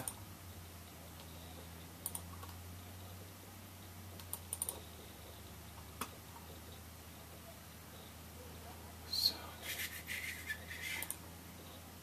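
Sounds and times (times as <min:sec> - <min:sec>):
low steady hum: 0:00.0 - 0:12.0
computer clicks: 0:02.0 - 0:02.6, 0:04.2 - 0:04.9, 0:10.9 - 0:11.2.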